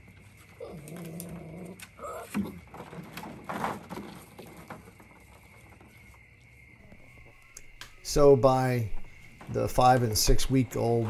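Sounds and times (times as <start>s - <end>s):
high insect drone: 4.7s - 11.0s.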